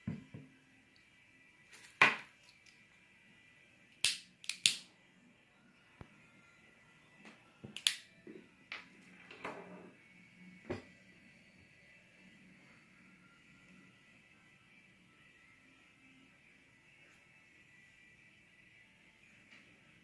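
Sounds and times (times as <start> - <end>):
lighter igniter clicking: 4.0 - 4.9, 7.8 - 8.1.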